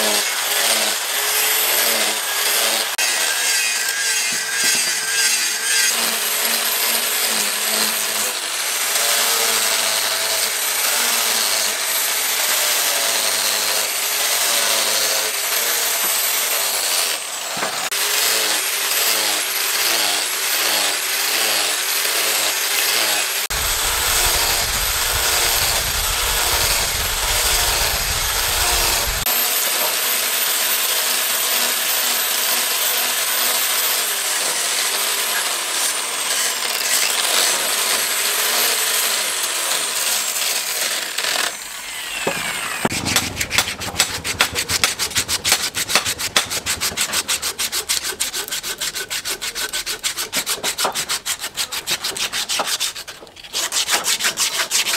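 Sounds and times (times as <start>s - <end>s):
angle grinder sanding wood: 0.0s - 54.9s
hand rubbing wooden handle: 42.2s - 53.2s.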